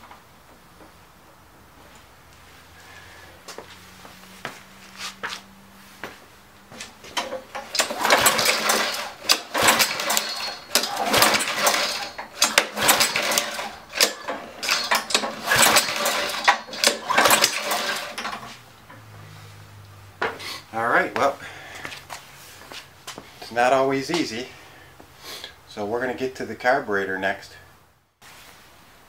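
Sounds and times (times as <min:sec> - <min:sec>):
mower recoil starter pulls: 0:07.1 - 0:18.6.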